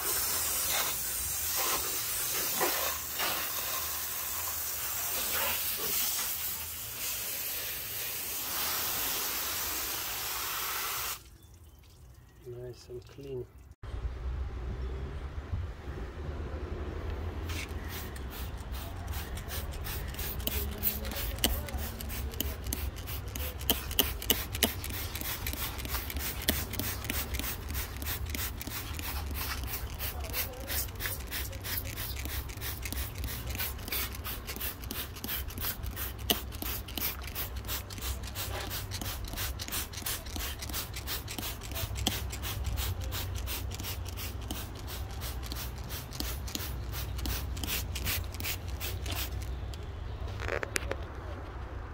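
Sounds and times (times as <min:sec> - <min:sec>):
spray bottle hissing squirts: 0:00.0 - 0:11.3, 0:17.4 - 0:49.5.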